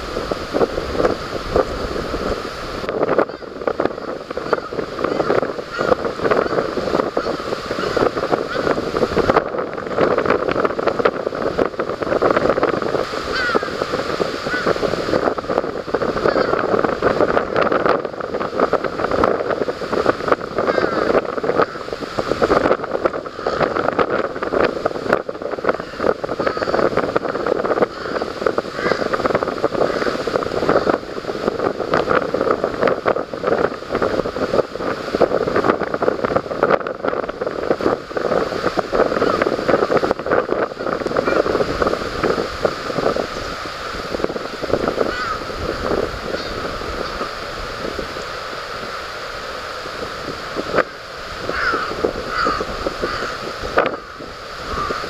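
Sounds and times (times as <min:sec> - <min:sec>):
wind buffeting microphone: 0:00.0 - 0:55.0
crow calling: 0:03.2 - 0:08.7, 0:13.2 - 0:13.8, 0:14.4 - 0:14.8, 0:16.2 - 0:16.7, 0:20.7 - 0:21.9, 0:25.8 - 0:26.9, 0:27.9 - 0:29.1, 0:39.1 - 0:39.5, 0:45.1 - 0:47.3, 0:50.8 - 0:55.0.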